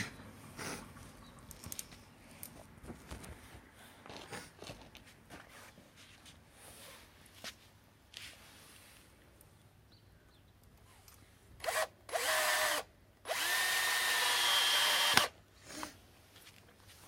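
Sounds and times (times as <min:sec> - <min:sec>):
cordless drill driving a screw: 0:11.6 - 0:15.3.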